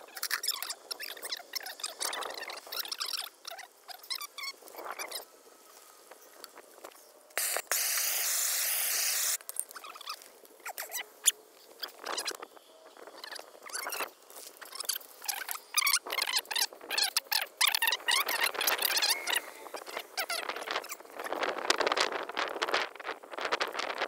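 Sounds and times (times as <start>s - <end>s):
loud steady hiss: 4.6s - 9.6s.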